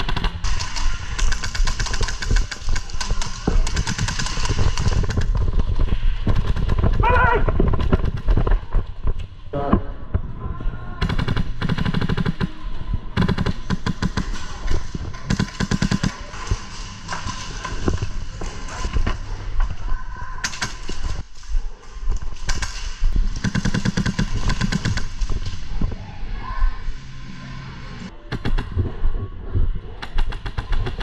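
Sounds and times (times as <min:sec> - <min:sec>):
airsoft guns firing bursts: 0:00.0 - 0:05.3, 0:11.0 - 0:12.5, 0:13.2 - 0:14.6, 0:15.2 - 0:16.4, 0:22.5 - 0:25.2.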